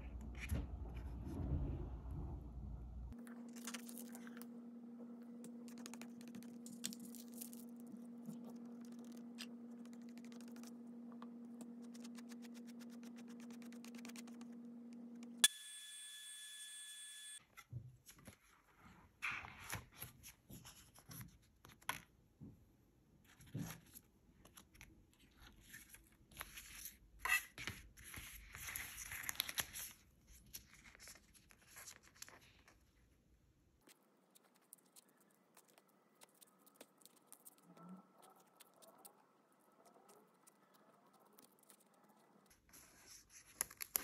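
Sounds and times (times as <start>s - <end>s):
paper crackling and rustling: 27.7s - 33.0s.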